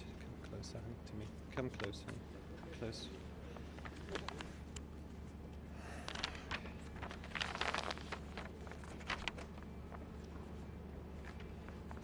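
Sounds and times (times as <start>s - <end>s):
steady low hum: 0.0s - 12.0s
rustles: 6.1s - 9.6s.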